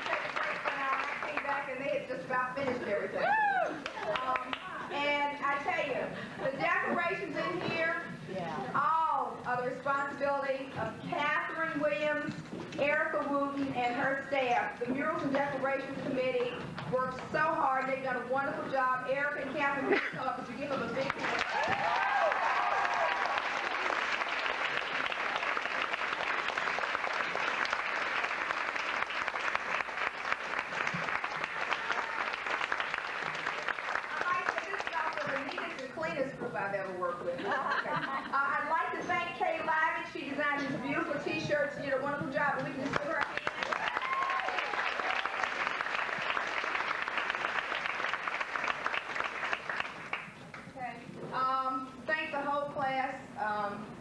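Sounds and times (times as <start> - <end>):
audience applauding: 0.0 - 1.9, 3.6 - 4.9, 21.0 - 35.9, 43.0 - 50.5.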